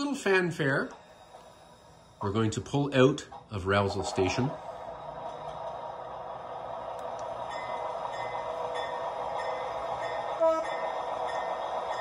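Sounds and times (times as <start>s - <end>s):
locomotive bell dinging: 7.4s - 12.0s.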